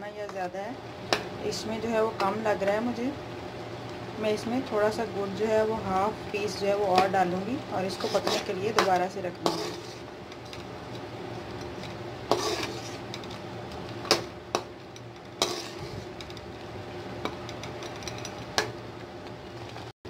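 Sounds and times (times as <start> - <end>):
simmering pot hissing: 7.2 - 10.3, 11.1 - 13.6
spoon stirring thick chutney: 7.8 - 13.5, 14.6 - 18.2.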